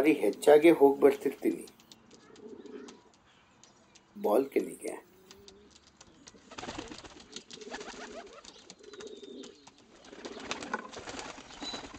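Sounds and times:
pigeons cooing: 1.2s - 3.3s, 5.1s - 11.9s
faint clicks: 1.2s - 4.2s, 5.2s - 6.5s.

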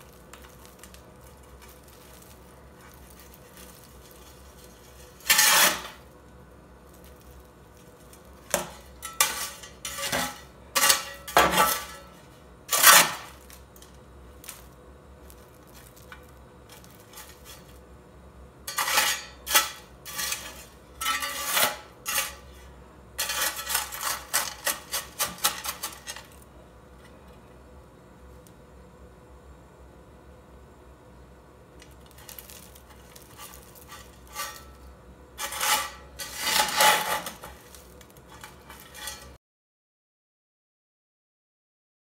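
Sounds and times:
metal scoop scraping ash: 0.0s - 27.2s, 31.8s - 39.4s.

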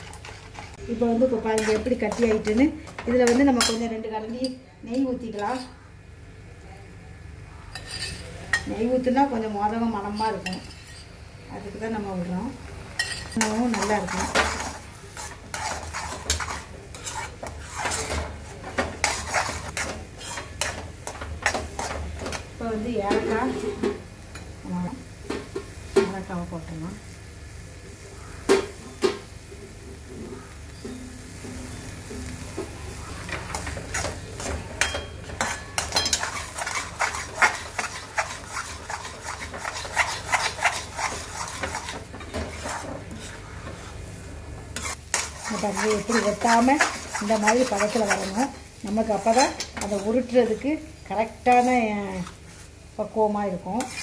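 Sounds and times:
spatula scraping metal pan: 0.0s - 0.8s, 1.4s - 2.6s, 13.0s - 22.3s, 33.2s - 44.2s, 44.8s - 52.7s, 53.7s - 54.0s.

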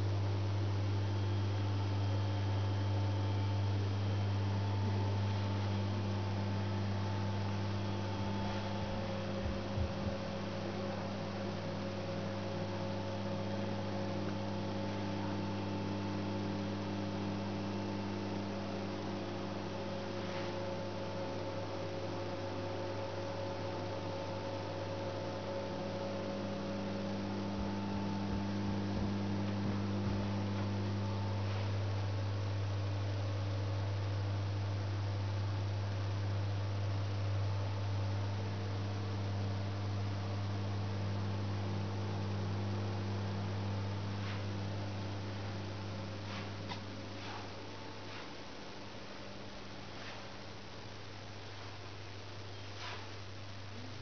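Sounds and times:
electrical mains hum: 0.0s - 54.0s
soft bumps: 8.4s - 11.5s, 27.4s - 31.8s.

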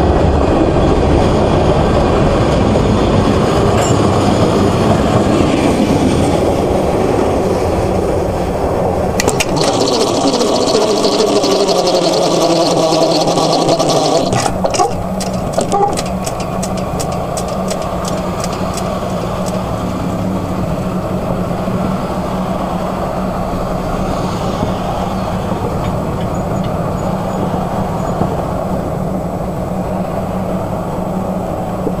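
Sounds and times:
freight train rumble: 0.0s - 9.8s, 14.4s - 32.0s
train wheels clicking over rails: 14.4s - 23.0s.

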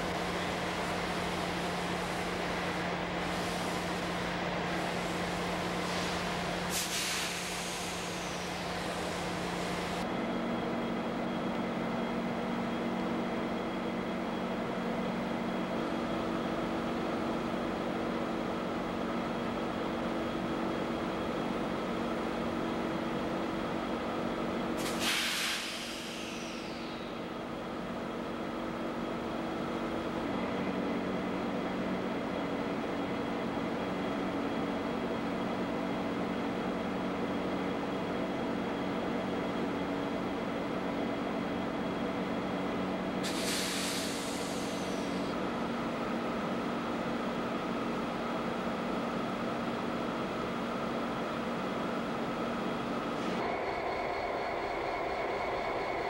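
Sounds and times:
diesel locomotives idling: 0.0s - 56.0s
air brake hisses: 5.8s - 9.4s, 24.8s - 27.2s, 43.2s - 45.3s.

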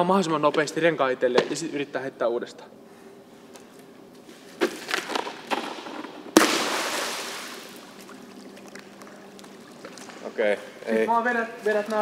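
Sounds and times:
life ring splashing into pool: 6.3s - 8.9s.

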